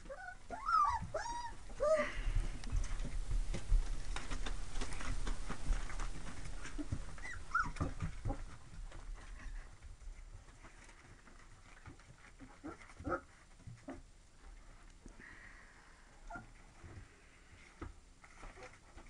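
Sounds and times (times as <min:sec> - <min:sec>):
puppy whimper: 0:00.0 - 0:02.2, 0:06.8 - 0:08.4, 0:16.3 - 0:16.5
puppies' scratchy claw clicks: 0:02.6 - 0:09.9.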